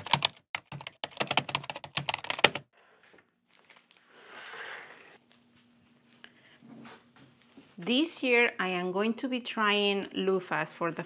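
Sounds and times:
computer keyboard typing: 0.0 - 2.7.

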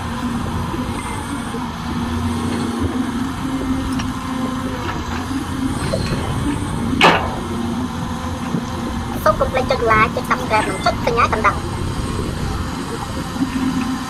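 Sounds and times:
excavator diesel engine running: 0.0 - 14.0
sharp knock: 7.0 - 7.5.

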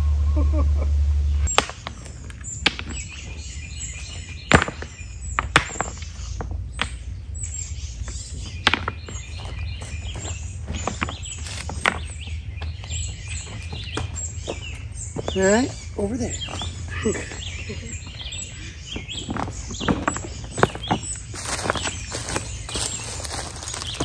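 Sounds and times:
birds chirping: 0.0 - 24.0
stones knocking together: 1.5 - 3.4, 4.4 - 7.0, 8.0 - 12.9, 18.9 - 24.0.

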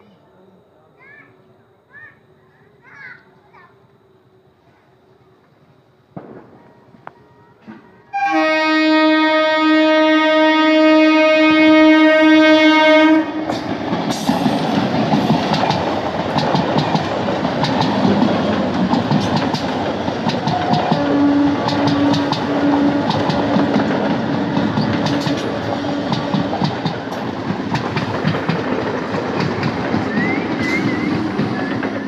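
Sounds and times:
train rolling noise: 3.3 - 32.0
train horn blast: 8.1 - 13.6, 20.4 - 24.1, 24.8 - 26.6
train wheels clickety-clack: 13.4 - 32.0.

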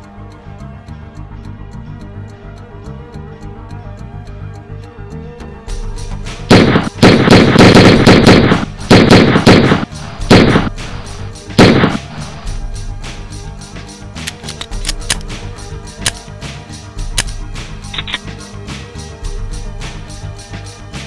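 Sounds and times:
music with ticking beat: 0.0 - 21.0
rapid handgun gunfire: 6.5 - 12.1.

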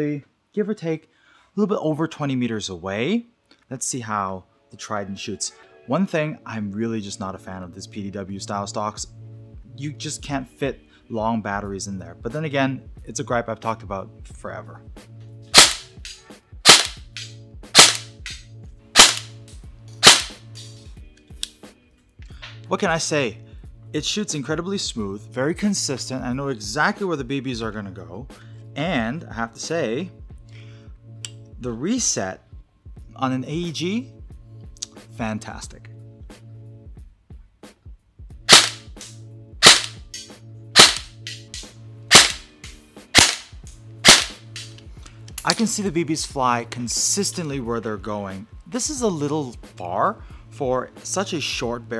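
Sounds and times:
airsoft gun shots: 15.5 - 18.4, 19.0 - 19.4, 20.0 - 20.4, 38.5 - 40.2, 40.8 - 42.5, 43.1 - 44.7.

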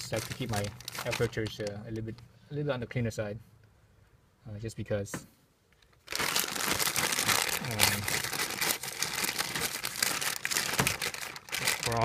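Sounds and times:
crinkling and rustling: 0.0 - 2.3, 5.7 - 12.0.

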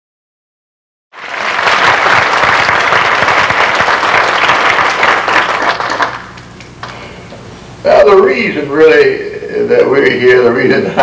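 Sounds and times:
audience applauding: 1.2 - 7.0.

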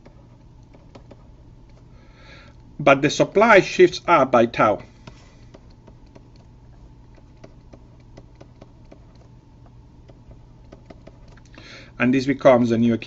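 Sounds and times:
stylus tapping on drawing tablet: 0.0 - 1.9, 5.0 - 6.5, 7.1 - 11.5
low steady hum: 0.0 - 13.0.

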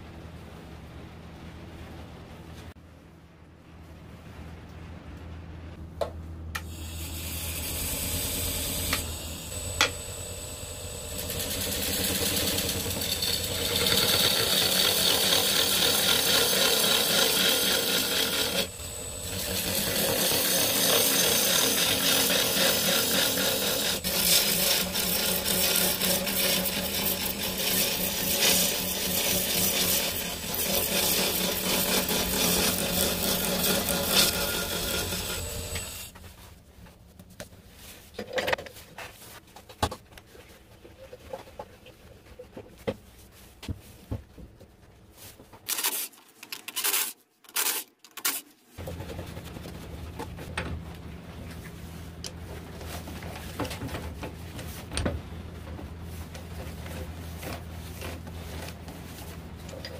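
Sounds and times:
steady low hum: 0.0 - 38.2, 48.8 - 59.9
lathe motor hum: 6.6 - 36.2
gouge cutting wood on lathe: 6.7 - 36.2.

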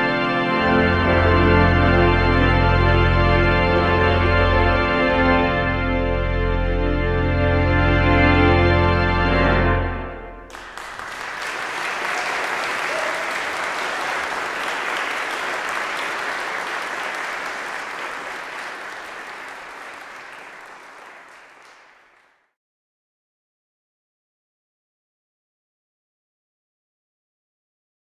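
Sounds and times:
pipe organ chord: 0.0 - 11.7
audience applauding: 10.5 - 22.4.

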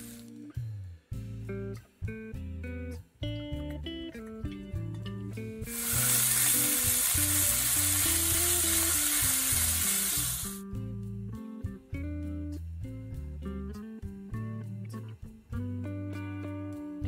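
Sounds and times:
acoustic guitar music: 3.2 - 10.7
meat sizzling in a skillet: 5.7 - 10.6.

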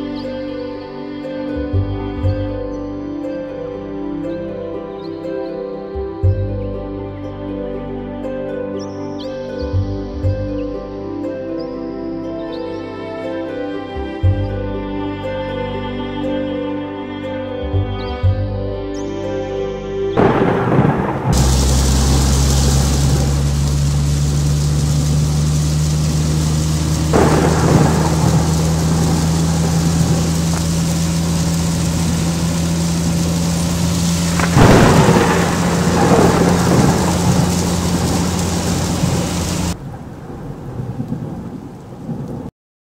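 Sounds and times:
heavy rain pouring: 20.2 - 42.5
thunder claps: 20.2 - 42.5.

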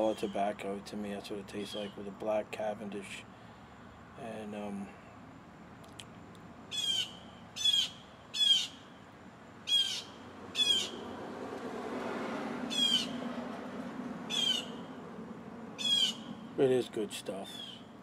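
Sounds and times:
bird squawking: 6.7 - 8.8, 9.7 - 11.0, 12.7 - 13.2, 14.3 - 14.9, 15.8 - 16.4, 17.5 - 17.9.

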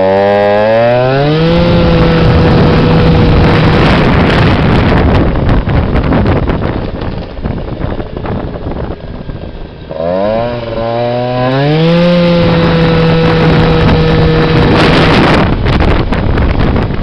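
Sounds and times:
two-stroke scooter engine buzzing: 0.0 - 17.0
wind rushing past microphone: 0.2 - 17.0.

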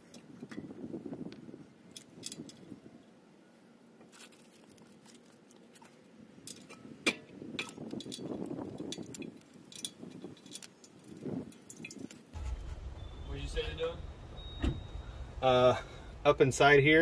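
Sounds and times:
metal tools clinking and rattling: 7.6 - 12.4.

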